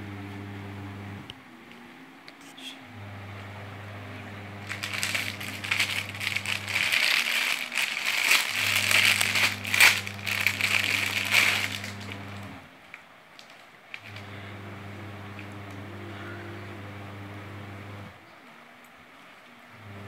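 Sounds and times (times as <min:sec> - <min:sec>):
steady low hum: 0:02.3 - 0:12.8, 0:13.9 - 0:18.2
packaging crinkling and rustling: 0:04.6 - 0:14.3.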